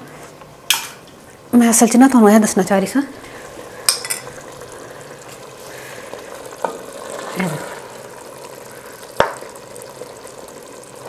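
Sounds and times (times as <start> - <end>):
curry sizzling in a pot: 3.1 - 11.0
wooden spoon knocking on pot: 9.2 - 9.5.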